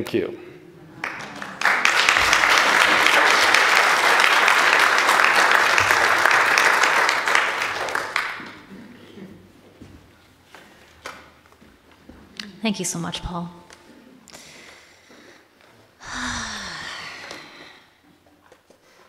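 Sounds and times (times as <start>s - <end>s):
audience applauding: 0.9s - 8.7s.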